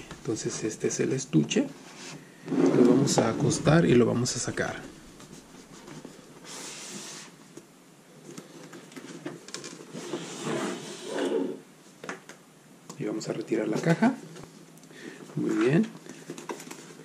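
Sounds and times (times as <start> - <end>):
bag scraping against cardboard: 9.9 - 11.6.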